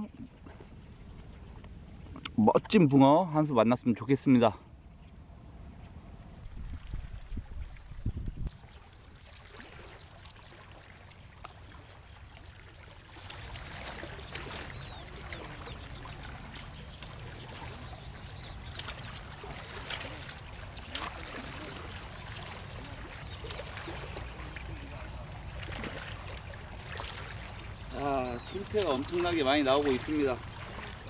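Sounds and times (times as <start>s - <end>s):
wind on microphone: 5.5s - 8.8s
small waves lapping: 6.0s - 31.0s.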